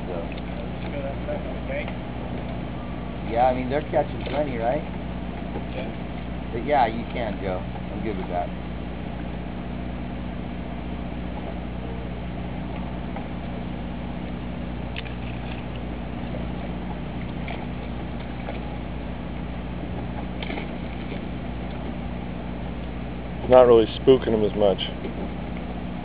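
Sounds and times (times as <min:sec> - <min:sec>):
boat machinery humming: 0:00.0 - 0:26.0.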